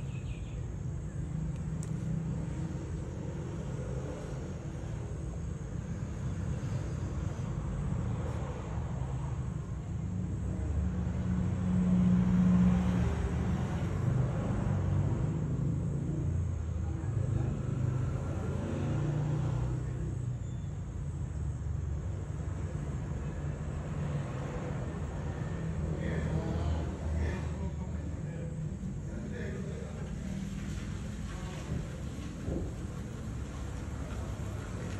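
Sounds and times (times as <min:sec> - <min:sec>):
low uneven rumble: 0:24.6 - 0:34.9.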